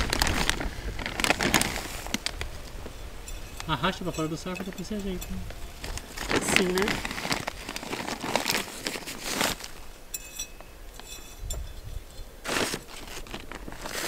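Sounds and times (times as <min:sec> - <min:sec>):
plastic bag crinkling: 0:00.0 - 0:09.9, 0:12.4 - 0:14.0
high ringing tone: 0:10.0 - 0:12.3
trowel scraping soil: 0:12.4 - 0:14.0.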